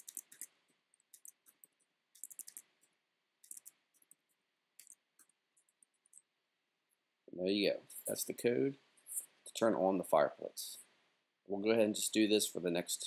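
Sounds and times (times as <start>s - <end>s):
faint keyboard typing: 0.0s - 6.3s.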